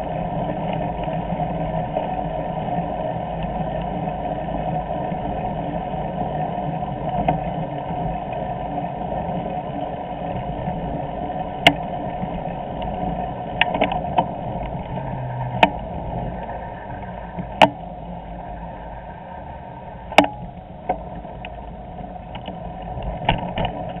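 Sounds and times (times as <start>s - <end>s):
bicycle rumble on pavement: 0.0s - 24.0s.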